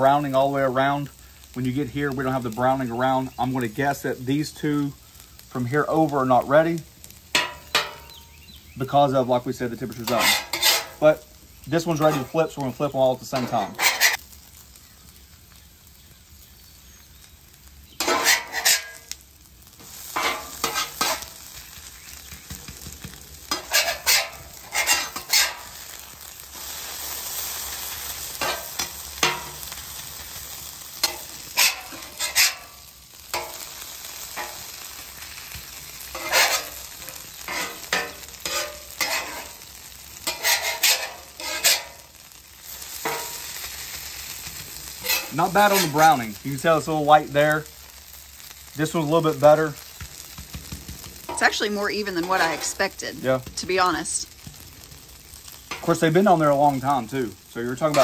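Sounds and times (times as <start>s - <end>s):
potatoes sizzling in oil: 0.0s - 58.0s
metal spatula scraping griddle: 7.1s - 8.2s, 9.7s - 11.2s, 11.8s - 14.2s, 18.0s - 19.2s, 19.8s - 21.8s, 23.0s - 46.9s, 48.8s - 53.6s, 55.3s - 58.0s.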